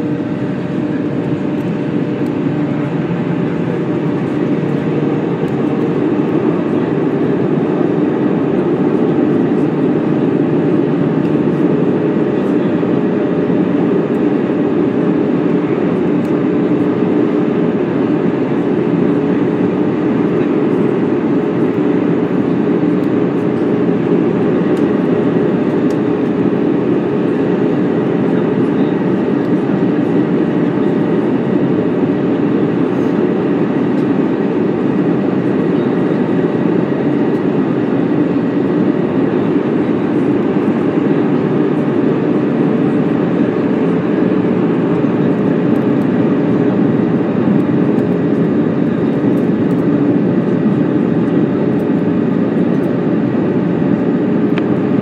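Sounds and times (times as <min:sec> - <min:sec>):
aircraft engines and airflow rushing: 0:00.0 - 0:55.0.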